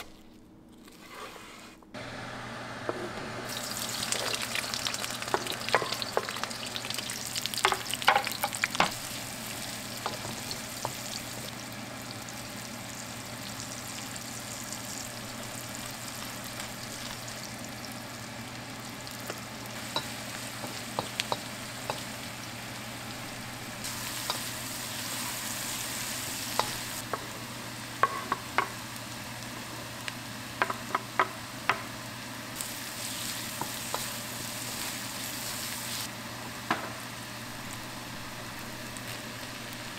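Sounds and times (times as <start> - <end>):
wooden spoon scraping a wok: 0.8 - 1.8
onions sizzling in a wok: 2.0 - 39.9.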